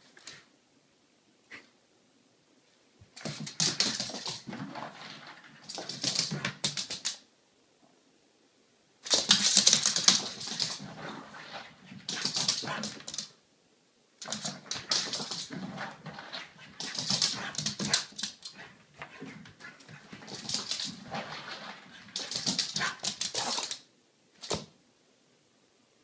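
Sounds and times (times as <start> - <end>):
dog claws clicking on wood floor: 3.2 - 4.5, 5.6 - 7.2, 9.1 - 10.8, 12.0 - 13.3, 14.2 - 15.7, 16.7 - 19.3, 19.9 - 23.8.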